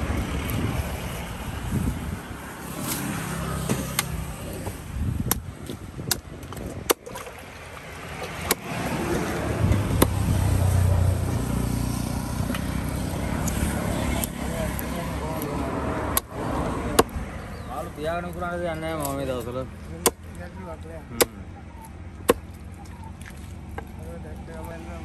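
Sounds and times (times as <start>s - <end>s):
knife chopping into wood: 3.6s - 7.4s, 8.2s - 8.8s, 9.8s - 10.2s, 16.1s - 17.2s, 20.0s - 20.3s.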